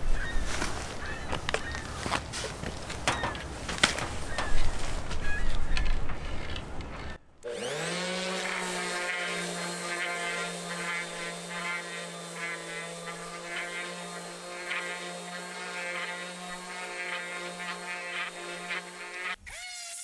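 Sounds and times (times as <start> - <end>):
orbital sander sanding wood: 7.4 - 19.9.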